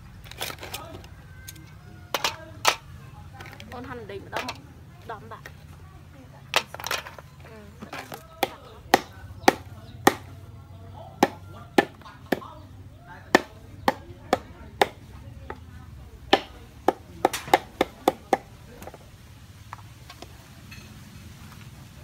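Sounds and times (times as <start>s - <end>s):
knife chopping on wooden board: 8.0s - 10.3s, 11.2s - 12.6s, 13.3s - 15.6s, 16.3s - 19.0s.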